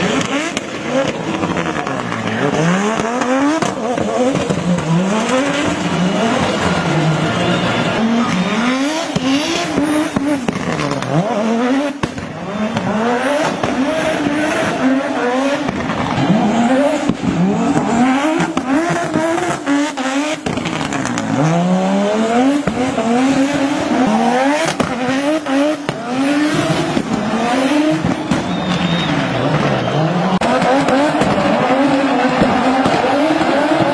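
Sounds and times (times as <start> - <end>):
rally car engine revving: 0.0 - 33.9
exhaust pops: 9.2 - 11.1, 25.8 - 33.9.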